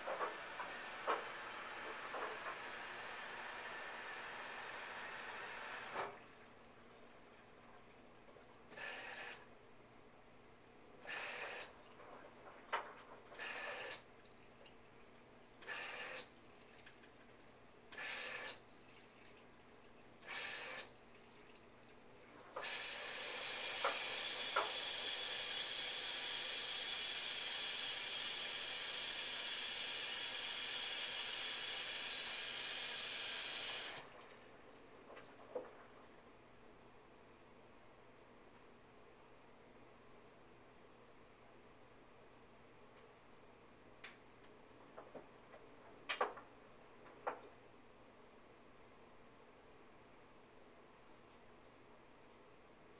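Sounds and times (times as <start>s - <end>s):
washing machine water spurts: 0.0s - 9.5s, 11.0s - 36.2s.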